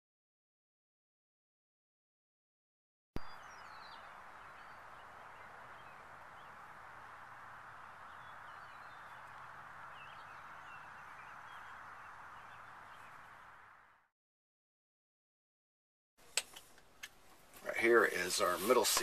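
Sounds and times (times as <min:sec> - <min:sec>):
bird chirps: 0:03.2 - 0:13.6
background hiss: 0:03.2 - 0:13.8, 0:16.2 - 0:19.0
faint low hum: 0:03.2 - 0:14.0.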